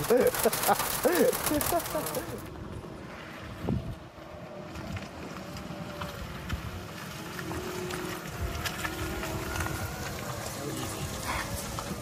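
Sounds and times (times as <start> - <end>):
small clicks: 0.0 - 2.5
tyres rumbling on dirt: 0.0 - 2.5.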